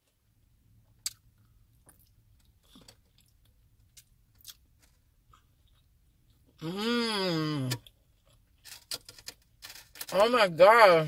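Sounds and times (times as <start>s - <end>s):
mouth chewing clicks and smacks: 1.0s - 4.7s.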